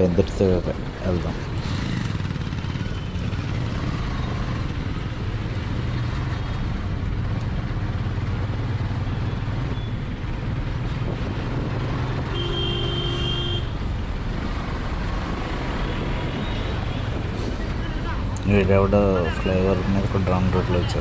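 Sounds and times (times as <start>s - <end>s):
motorcycle engine hum: 0.0s - 21.0s
wind noise: 10.8s - 12.1s
vehicle horn: 12.3s - 13.8s.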